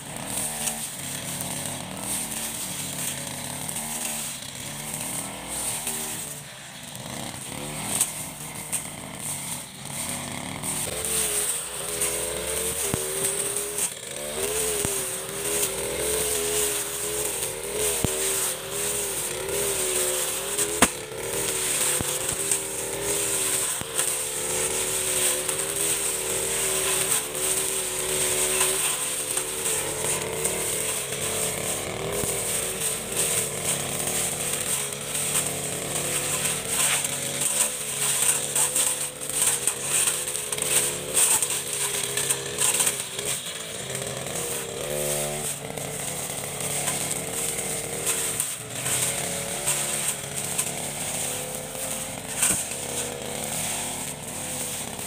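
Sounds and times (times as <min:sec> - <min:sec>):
brush cutter engine running: 0:00.0 - 0:55.0
cutting head slashing grass: 0:00.1 - 0:06.5, 0:07.3 - 0:55.0
ticking of stems being hit: 0:07.5 - 0:55.0.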